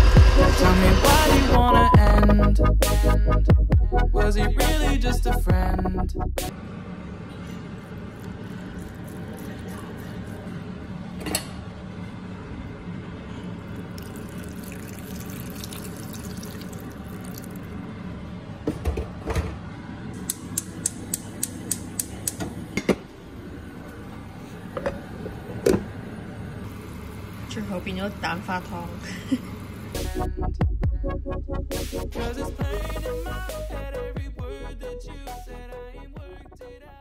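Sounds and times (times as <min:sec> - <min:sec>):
liquid pouring into pot: 0:08.2 - 0:10.4, 0:13.8 - 0:17.8.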